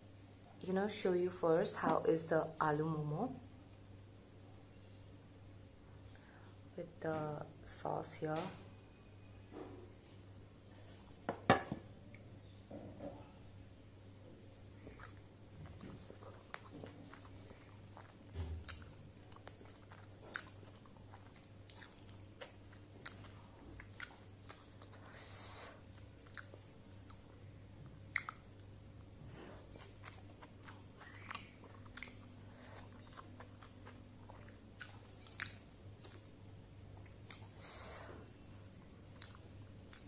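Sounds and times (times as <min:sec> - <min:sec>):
person chewing wetly: 0:14.7 - 0:25.2, 0:25.8 - 0:37.6, 0:38.3 - 0:40.0.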